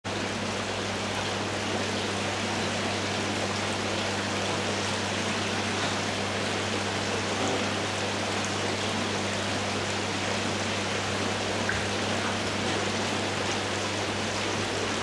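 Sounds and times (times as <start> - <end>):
water splashing into pool: 11.5 - 14.2.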